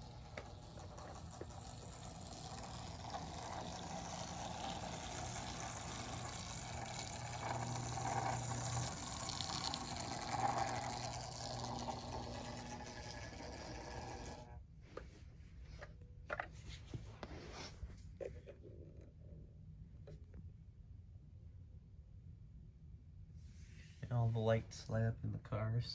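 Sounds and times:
toy train motor whirring: 0.0 - 14.6.

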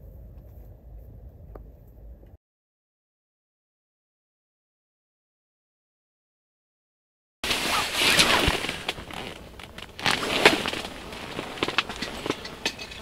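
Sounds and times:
rustling and crackling handling noise: 7.4 - 13.0.

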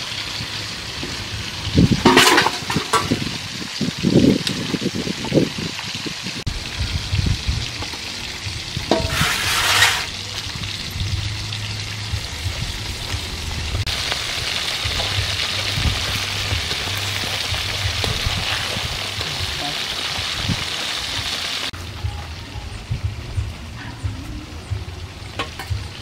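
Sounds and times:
fish sizzling in hot oil: 0.0 - 22.4
loud hiss: 8.9 - 10.3.

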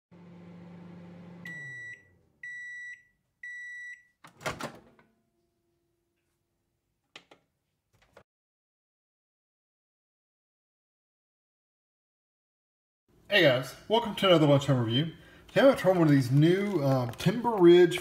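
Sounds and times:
microwave oven humming: 0.2 - 2.6.

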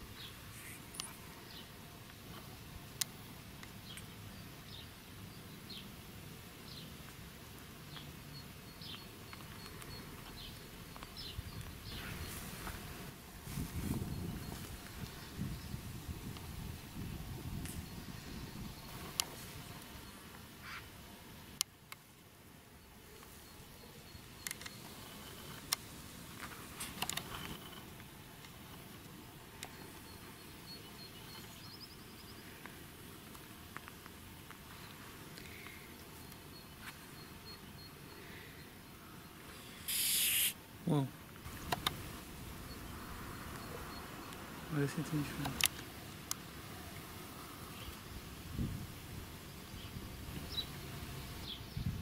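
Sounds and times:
bird chirping: 7.9 - 12.4, 29.7 - 32.5, 34.8 - 41.9, 49.5 - 50.8.

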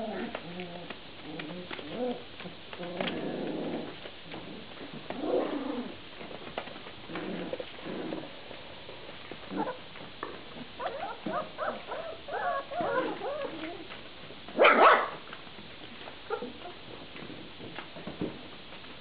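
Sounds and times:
puppy bark: 10.8 - 13.5, 14.6 - 15.2
puppies yipping and whining: 10.8 - 14.0.

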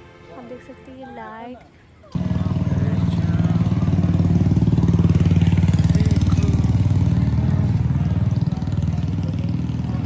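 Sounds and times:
vehicle engine running: 2.1 - 10.0.

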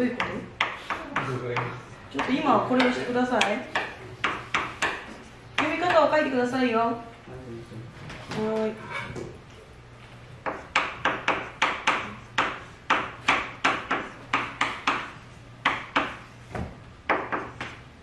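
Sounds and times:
chalk tapping and scraping on blackboard: 0.2 - 6.1, 10.0 - 16.3.

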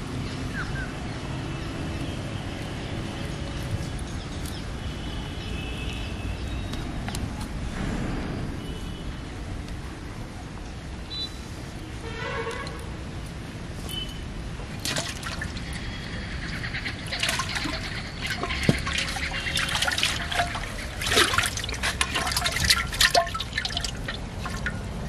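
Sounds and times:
water splashing and dripping: 14.6 - 25.0.

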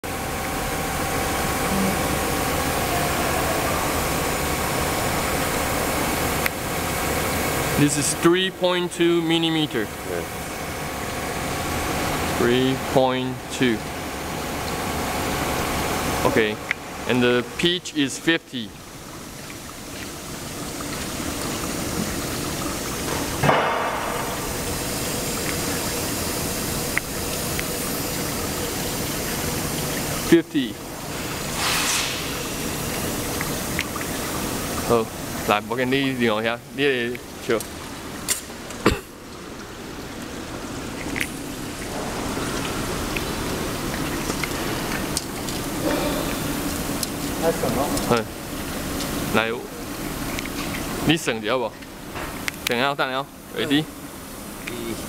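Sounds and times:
faint hum: 0.1 - 22.9
machinery hiss: 31.4 - 32.8.

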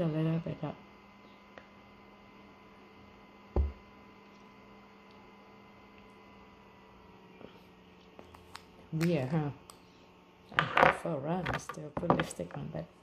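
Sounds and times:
low electrical hum: 0.0 - 13.0
dull thump: 3.6 - 3.8.

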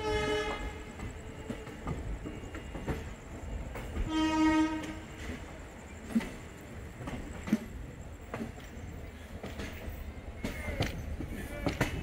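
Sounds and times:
train horn blasts: 0.0 - 0.9, 4.0 - 5.4
train running on rails: 0.0 - 12.0
wheels clicking over rail joints: 0.1 - 12.0.

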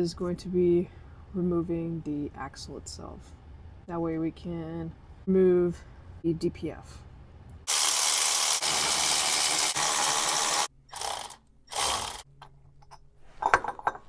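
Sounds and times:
cordless ratchet spinning: 7.7 - 12.3.

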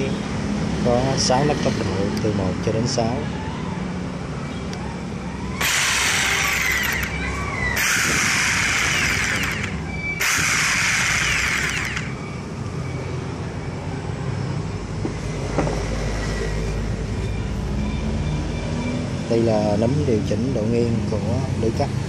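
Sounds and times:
jigsaw running with no load: 5.6 - 7.2, 7.8 - 12.1.

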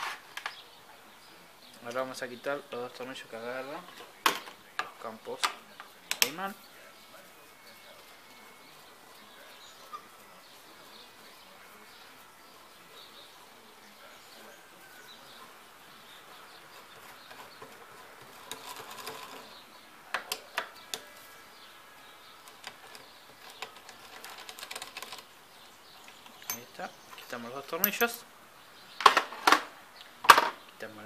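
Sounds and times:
low background noise: 0.0 - 31.0
light rattling: 7.6 - 28.2.

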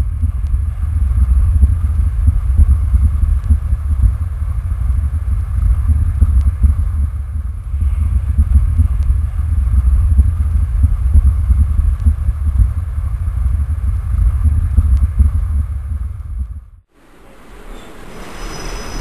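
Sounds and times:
low rumble on microphone: 0.0 - 18.2.

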